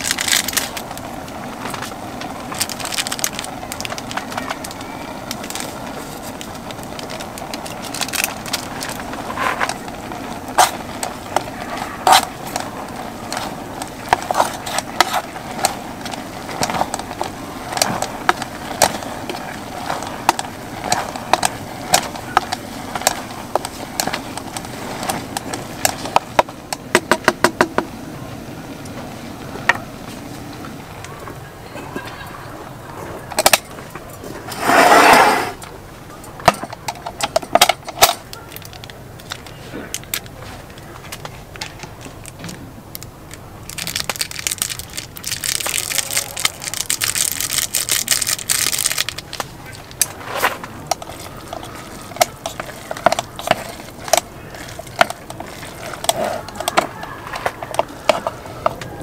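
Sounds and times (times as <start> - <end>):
chopsticks tapping metal pot: 50.9 - 58.9.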